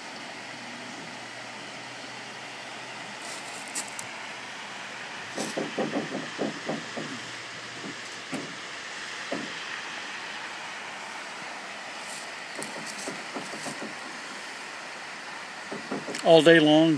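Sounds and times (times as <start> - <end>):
jet aircraft rumble overhead: 0.0 - 16.8
rapid low knocks: 5.4 - 9.7, 12.5 - 14.2, 15.7 - 16.2.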